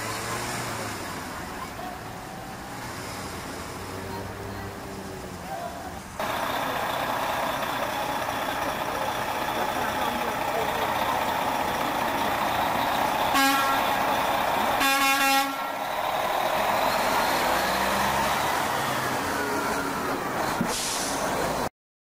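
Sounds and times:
diesel engine rumble: 0.0 - 21.7
street noise: 0.0 - 21.7
truck horn: 12.7 - 15.9.

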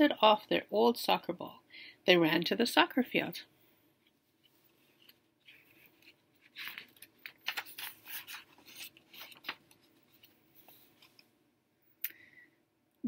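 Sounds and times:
book pages turning: 4.4 - 11.3.

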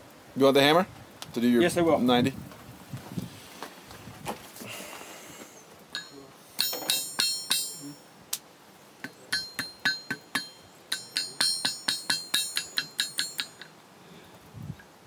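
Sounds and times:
hammer ringing on anvil: 6.0 - 8.1, 9.0 - 13.7.

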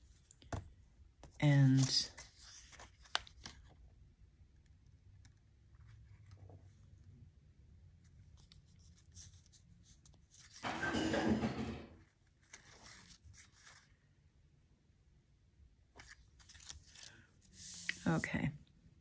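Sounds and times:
rough rustle of card: 1.7 - 3.8, 12.0 - 14.0, 16.0 - 18.2.

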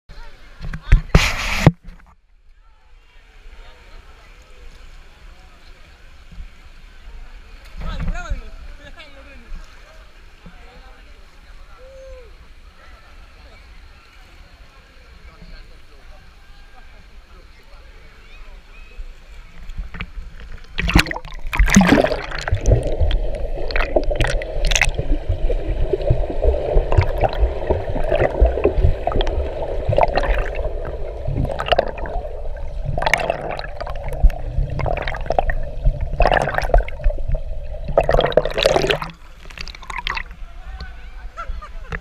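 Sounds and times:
underwater water churning: 20.6 - 40.4
bubbles popping: 20.8 - 40.4.

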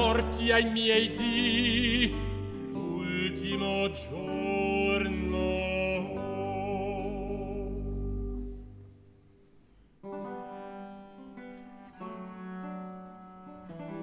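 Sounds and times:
sustained cello bass: 0.0 - 8.8
guitar strumming chords: 0.0 - 9.0, 10.0 - 14.0.

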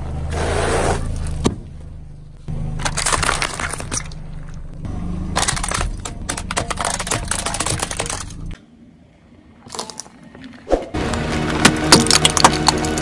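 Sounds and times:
plastic toys cracking under a tyre: 2.8 - 4.2, 5.3 - 8.6, 9.6 - 10.4, 11.5 - 13.0.

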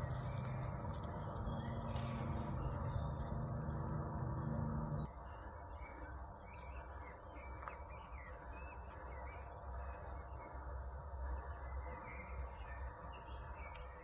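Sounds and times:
low rumble: 0.0 - 5.1
crickets trilling: 0.0 - 14.0.

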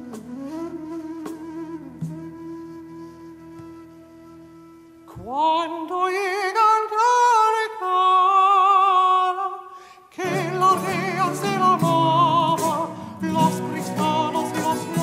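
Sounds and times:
countertenor singing with vibrato: 5.1 - 15.0.

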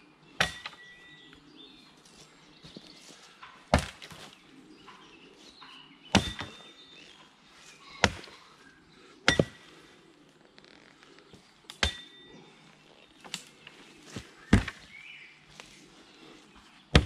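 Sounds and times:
axe chopping into log: 3.7 - 4.2, 6.1 - 6.6, 9.3 - 9.6, 11.8 - 12.2, 14.5 - 14.8.

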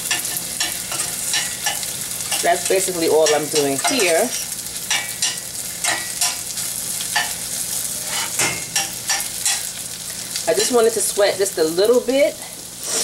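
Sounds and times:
onion sizzling in butter: 0.0 - 13.0
utensil scraping a pan: 8.0 - 9.6.

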